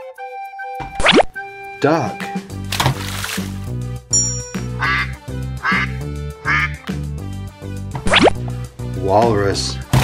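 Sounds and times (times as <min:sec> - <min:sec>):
background music: 0:00.0 - 0:10.0
duck quacking: 0:04.8 - 0:07.0.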